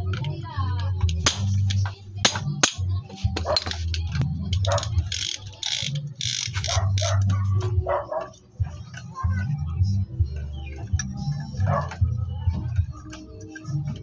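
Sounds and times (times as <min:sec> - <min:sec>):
sharp metal clicks: 0:03.6 - 0:07.4
rasping ratchet strokes: 0:04.6 - 0:07.4.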